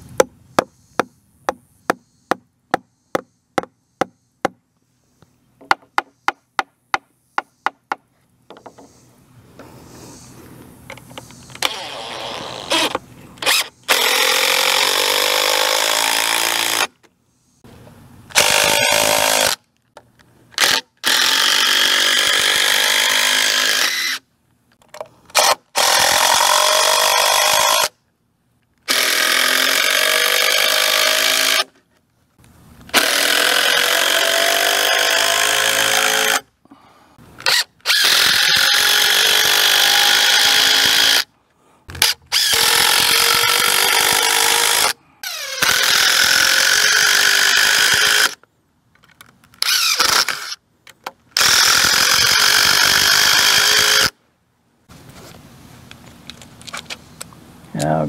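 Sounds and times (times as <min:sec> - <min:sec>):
cordless drill driving screws: 0:11.5 - 0:16.9, 0:20.6 - 0:24.2, 0:25.3 - 0:27.9, 0:28.8 - 0:31.7, 0:32.9 - 0:36.4, 0:37.4 - 0:41.3, 0:42.0 - 0:48.4, 0:49.6 - 0:50.6, 0:51.4 - 0:54.2.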